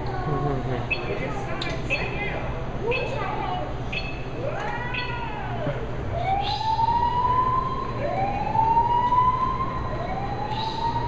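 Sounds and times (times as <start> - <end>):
steady low hum: 0.0 - 11.0
siren wailing: 4.4 - 11.0.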